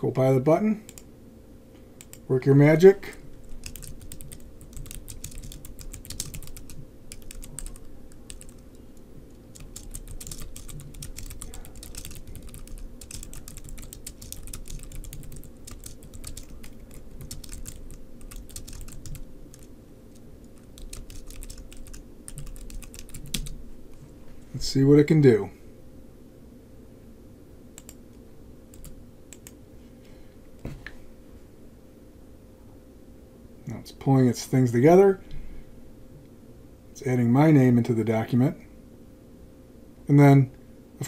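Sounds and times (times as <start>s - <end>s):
typing on computer keyboard: 3.4s - 8.7s, 9.5s - 19.7s, 20.6s - 23.6s, 28.7s - 29.6s.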